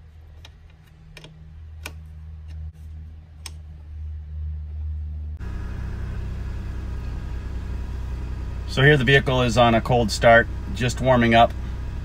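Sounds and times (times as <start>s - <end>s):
car engine idling: 4.0s - 12.0s.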